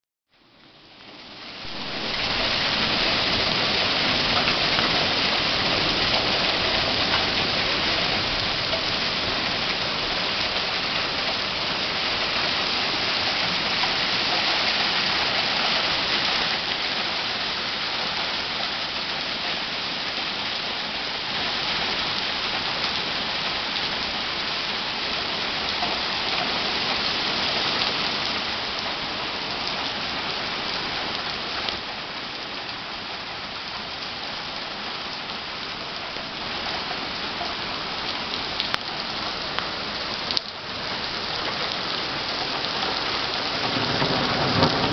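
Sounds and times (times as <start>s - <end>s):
heavy rain on pavement: 0.3s - 44.9s.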